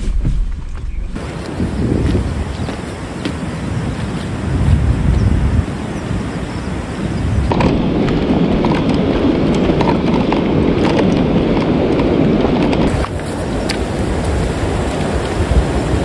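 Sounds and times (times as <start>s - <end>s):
wind buffeting microphone: 0.0s - 16.0s
river water rushing: 1.2s - 7.9s, 12.9s - 16.0s.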